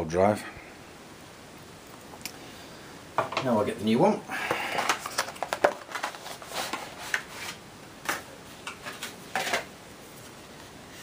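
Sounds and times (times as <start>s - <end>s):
clicks and scuffs of packaging: 4.8s - 10.3s.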